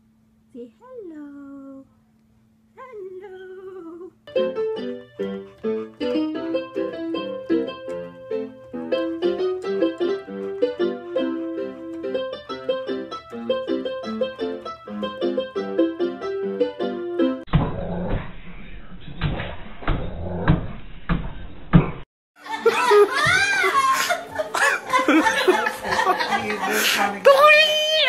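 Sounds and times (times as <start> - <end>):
electronic keyboard piano: 4.3 - 17.5.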